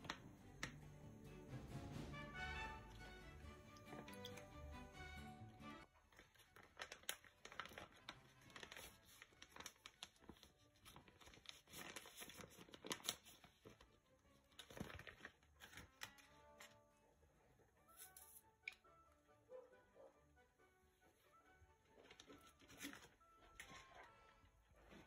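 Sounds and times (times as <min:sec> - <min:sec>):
plastic bag crinkling: 0:05.9 - 0:13.9, 0:14.5 - 0:16.2.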